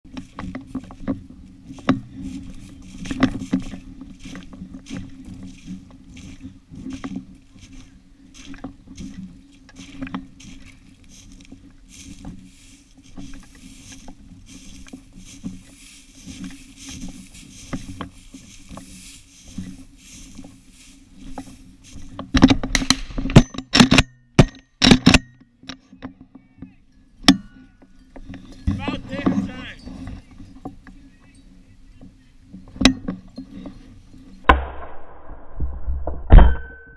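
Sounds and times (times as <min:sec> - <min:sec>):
footsteps through dry grass: 0:00.0 - 0:23.3, 0:27.7 - 0:34.4.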